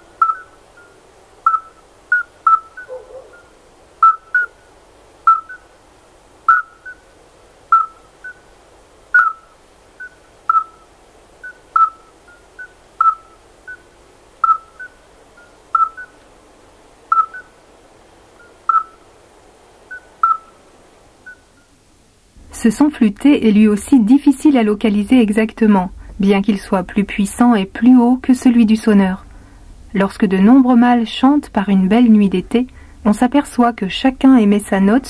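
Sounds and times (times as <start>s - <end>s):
toads calling with piping notes: 0.0s - 16.4s, 17.0s - 21.8s
faint tape hiss: 0.0s - 35.0s.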